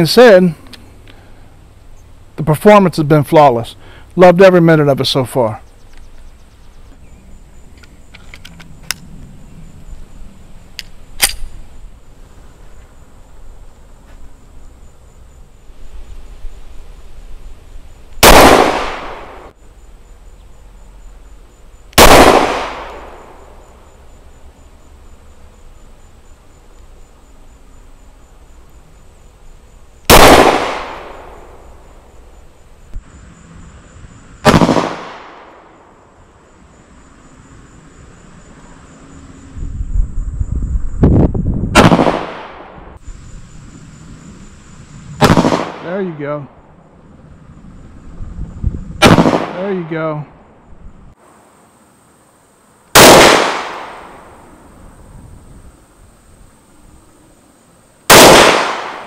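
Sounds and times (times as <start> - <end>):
pistol shots echoing: 18.2 - 19.5, 22.0 - 23.3, 30.1 - 31.6, 34.4 - 35.5, 49.0 - 49.9, 53.0 - 54.2, 58.1 - 59.0.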